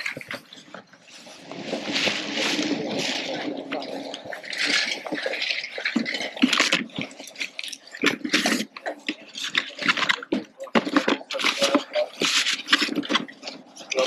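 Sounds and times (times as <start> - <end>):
cardboard box rustling and scraping: 0.0 - 3.8.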